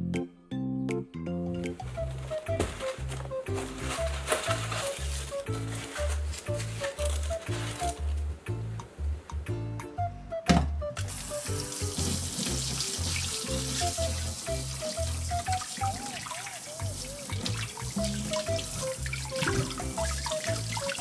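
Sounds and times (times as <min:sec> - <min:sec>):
background music with bass line: 0:00.0 - 0:16.2, 0:16.8 - 0:21.0
tap water running into sink: 0:11.0 - 0:21.0.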